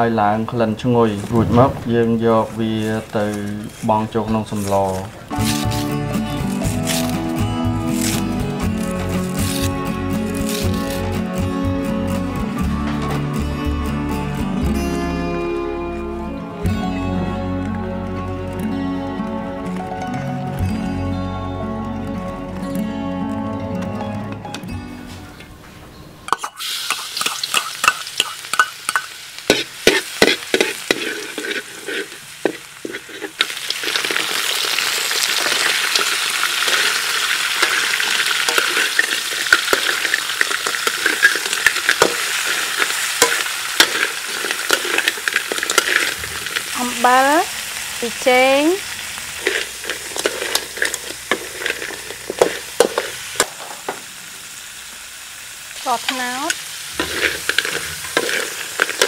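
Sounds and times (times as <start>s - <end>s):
food sizzling in hot oil: 2.6s - 14.8s, 26.3s - 59.0s
metal spatula scraping a wok: 3.7s - 7.3s, 7.9s - 11.1s, 26.4s - 47.0s, 49.3s - 53.6s, 56.5s - 59.0s.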